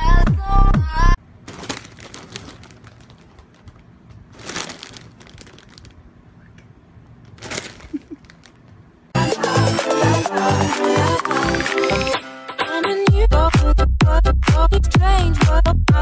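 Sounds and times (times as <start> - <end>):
chip bags crinkling: 1.4 - 6.1, 7.2 - 8.8.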